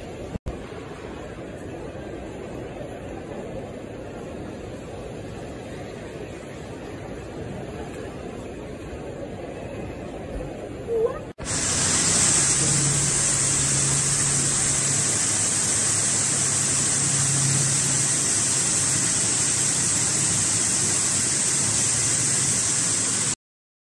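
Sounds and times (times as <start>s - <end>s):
torrential rain: 11.0s - 23.4s.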